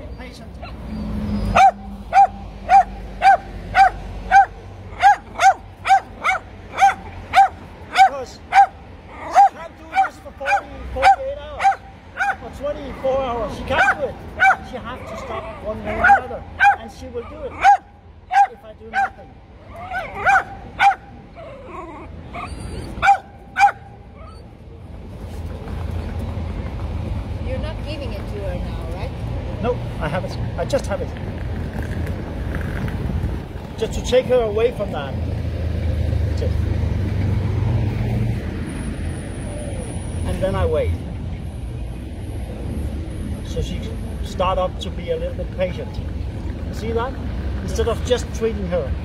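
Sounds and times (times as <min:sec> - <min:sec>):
dog barking: 0:01.5 - 0:12.4, 0:13.8 - 0:14.7, 0:15.9 - 0:16.9, 0:17.5 - 0:19.2, 0:19.8 - 0:21.1, 0:22.4 - 0:24.4.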